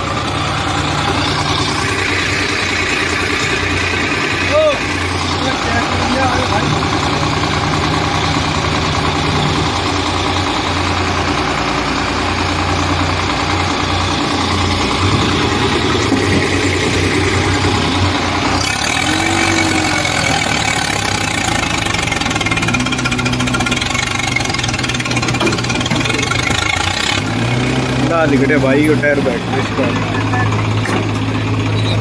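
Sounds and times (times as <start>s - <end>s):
tractor diesel engine under load: 0.0s - 32.0s.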